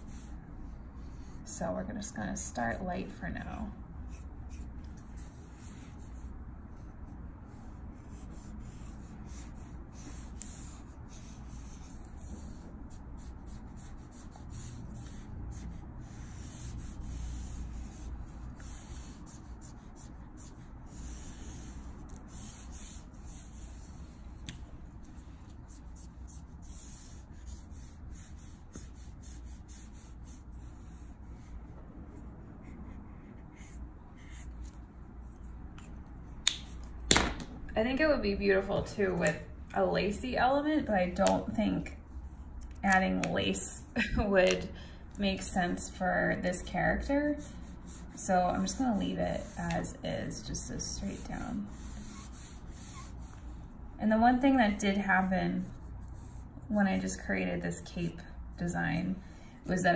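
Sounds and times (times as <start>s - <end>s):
marker scratching on paper: 0.0s - 0.4s, 3.5s - 37.0s, 45.3s - 53.6s, 55.6s - 56.6s.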